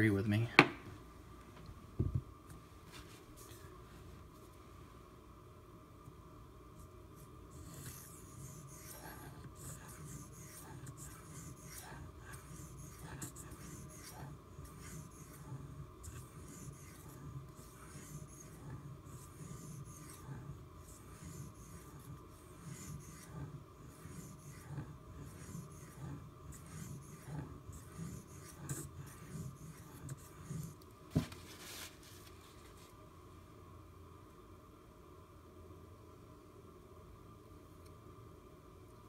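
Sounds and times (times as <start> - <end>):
knife blade scraping on whetstone: 7.6 - 30.8.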